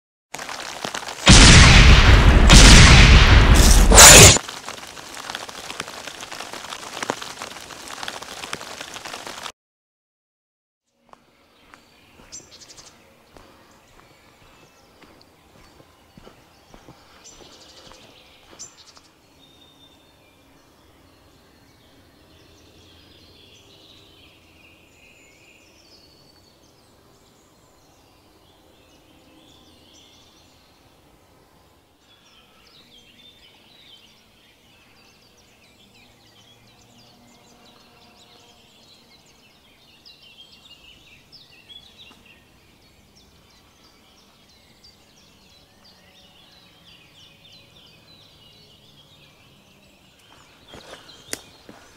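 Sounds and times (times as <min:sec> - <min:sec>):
songbirds chirping and trilling: 0:10.9 - 0:51.9.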